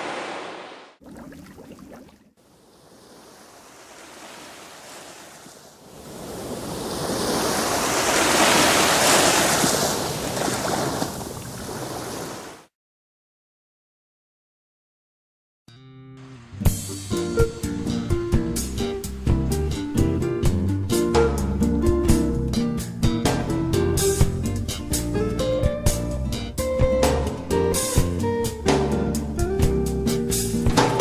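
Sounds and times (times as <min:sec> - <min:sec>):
rushing ocean surf: 0:00.0 - 0:12.7.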